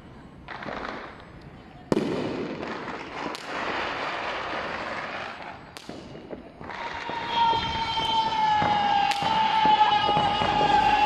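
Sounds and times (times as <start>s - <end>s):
fireworks crackling: 0.3s - 11.0s
firework bang: 5.8s - 11.0s.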